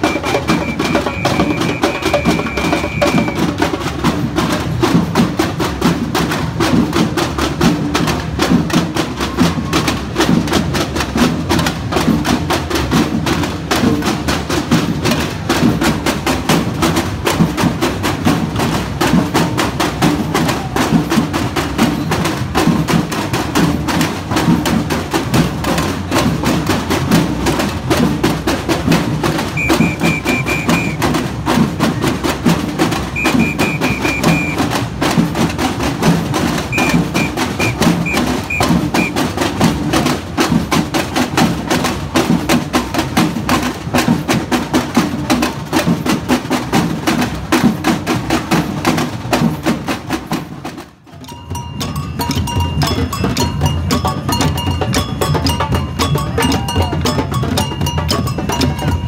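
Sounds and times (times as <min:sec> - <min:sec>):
ringing bell-like tones: 0:00.0 - 0:03.4, 0:36.8 - 0:39.2, 0:51.2 - 0:59.0
high piping whistle calls: 0:00.0 - 0:03.5, 0:29.5 - 0:31.0, 0:33.1 - 0:34.7, 0:36.7 - 0:39.2
samba drums playing: 0:00.0 - 0:59.0.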